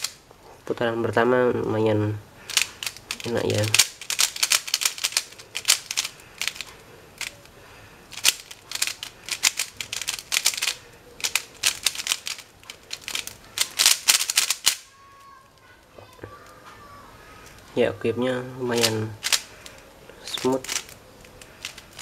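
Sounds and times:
puzzle cube clicking: 2.5s - 14.9s, 18.8s - 22.0s.

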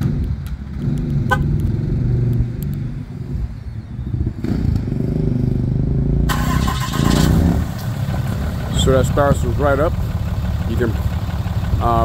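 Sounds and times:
diesel engine starting: 6.2s - 12.0s
diesel engine idling: 6.3s - 12.0s.

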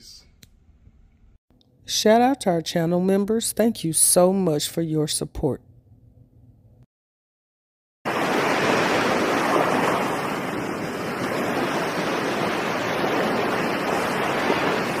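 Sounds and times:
ocean waves rushing: 8.1s - 15.0s.

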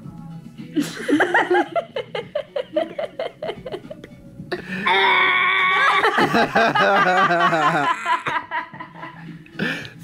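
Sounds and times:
child giggling: 5.7s - 8.8s.

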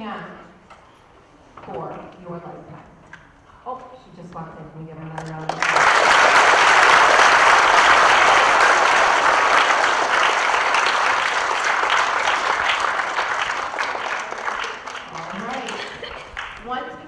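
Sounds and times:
audience applauding: 5.2s - 16.6s.

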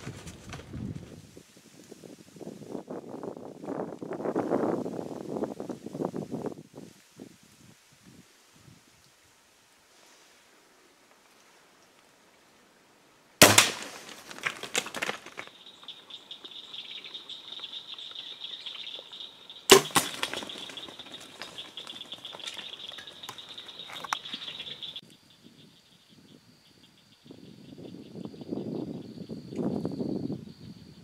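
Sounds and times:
bow shot crack: 13.4s - 15.2s, 19.7s - 20.9s
animals rustling through brush: 13.4s - 25.0s.

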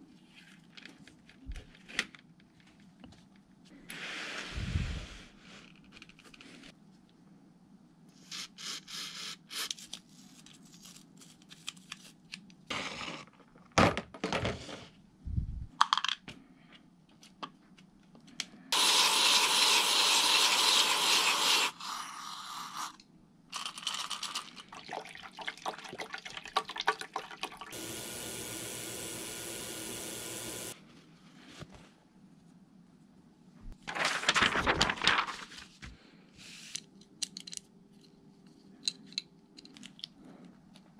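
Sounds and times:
aerosol spray can spraying: 18.8s - 21.9s.

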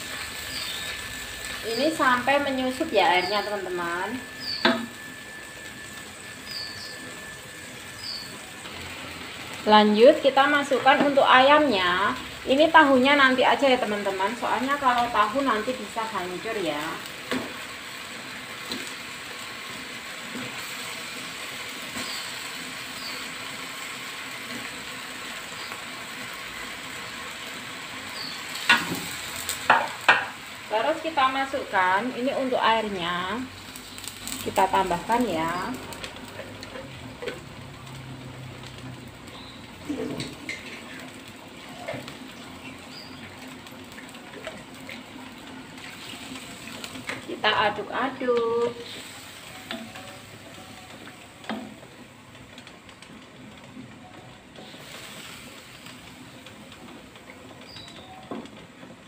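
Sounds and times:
chicken sizzling in a wok: 0.0s - 59.0s.

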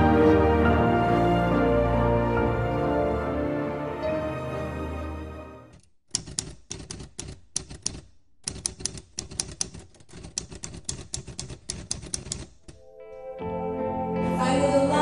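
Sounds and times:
background music: 0.0s - 5.8s, 12.7s - 15.0s
typewriter keystrokes: 6.1s - 12.8s.

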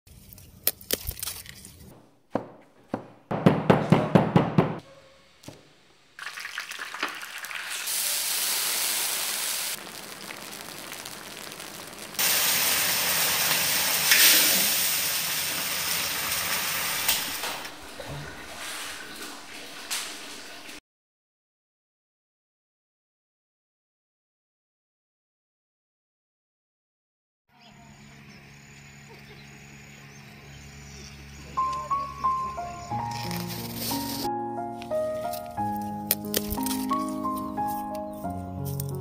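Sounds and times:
knife chopping: 1.9s - 4.8s
hot oil sizzling and spattering: 6.2s - 17.7s.

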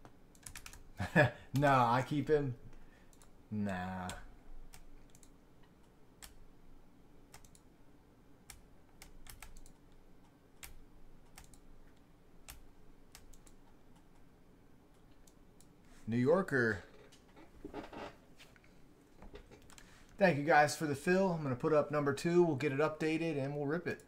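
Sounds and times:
mouse and keyboard clicking: 7.3s - 7.6s, 10.6s - 11.6s.

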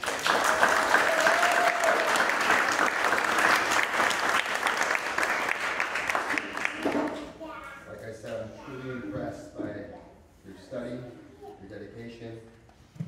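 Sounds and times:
people clapping: 0.0s - 7.3s.

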